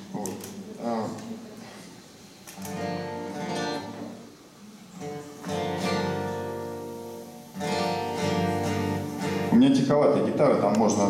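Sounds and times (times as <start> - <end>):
acoustic guitar chords strummed: 2.6 - 4.2, 5.0 - 10.0.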